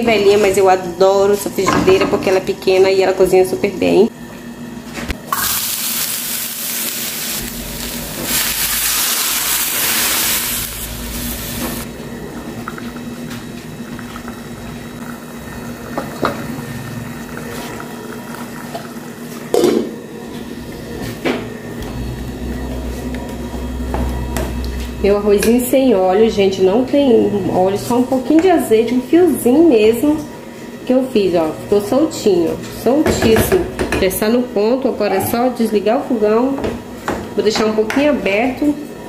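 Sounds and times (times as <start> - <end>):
eggplant sizzling in frying pan: 5.3 - 11.9.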